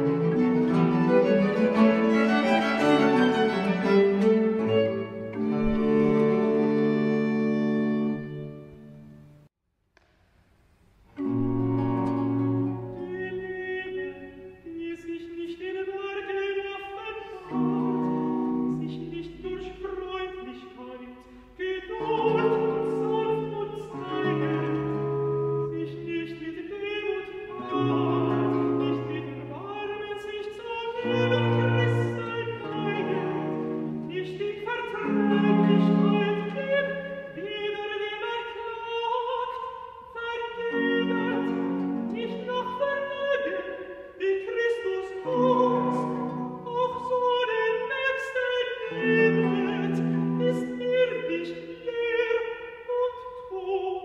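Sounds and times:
baroque instrumental ensemble: 0.0 - 9.5, 11.2 - 53.0
countertenor singing: 12.6 - 54.0.

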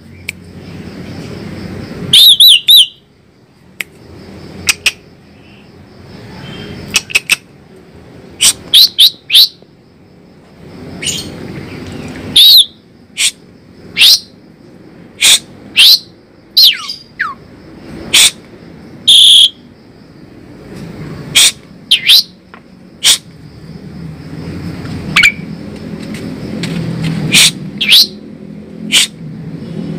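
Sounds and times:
bird whistled calls: 2.1 - 3.0, 8.4 - 9.6, 12.4 - 13.4, 14.0 - 14.3, 15.2 - 17.4, 19.1 - 19.6, 21.4 - 22.3, 27.3 - 28.2.

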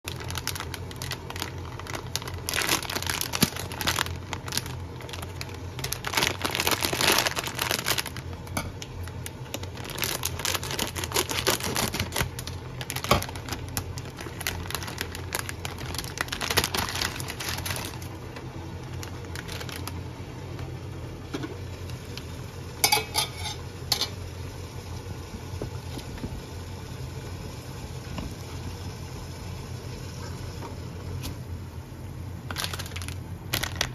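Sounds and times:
plastic wrapper crinkling: 0.1 - 20.1, 32.4 - 33.9
steady low hum: 0.1 - 33.9.

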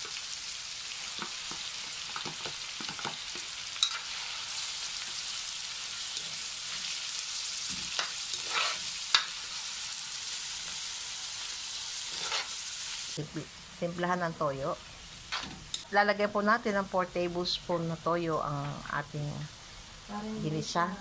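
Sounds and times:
food sizzling in hot oil: 0.0 - 21.0
spatula scraping and clinking pan: 7.7 - 9.4, 12.1 - 12.6.

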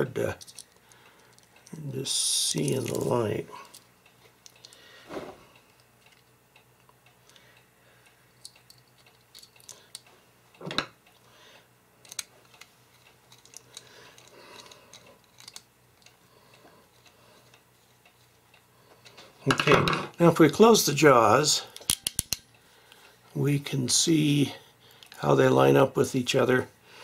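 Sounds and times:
screwdriver clicking and scraping: 12.0 - 16.1, 21.8 - 22.4.

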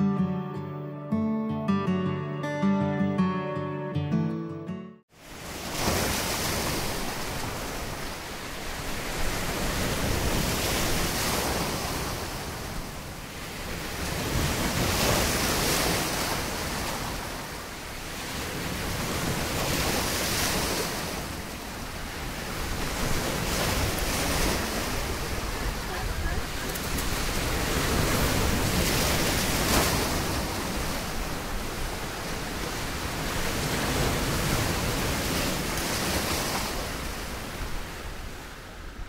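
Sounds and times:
surf breaking on beach: 5.1 - 38.7
wind buffeting microphone: 6.6 - 39.0.

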